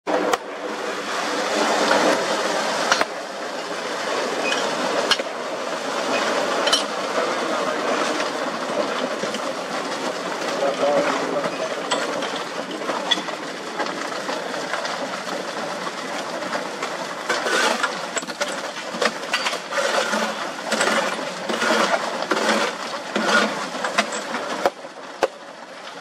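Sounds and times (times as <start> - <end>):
concrete mixer running: 0.1 - 26.0
wet concrete clattering in drum: 1.1 - 26.0
sharp scrapes and knocks: 17.3 - 25.4.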